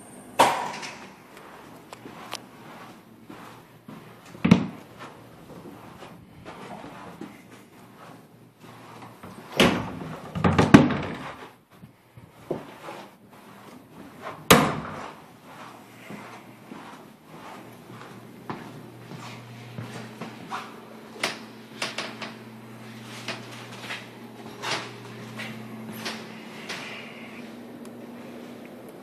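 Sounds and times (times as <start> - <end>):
wooden doors opening and shutting: 9.5 - 11.4.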